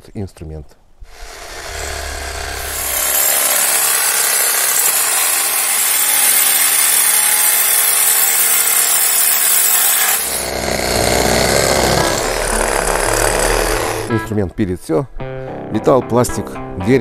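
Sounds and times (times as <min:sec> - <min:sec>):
reciprocating saw cutting wood: 0:01.0 - 0:14.3.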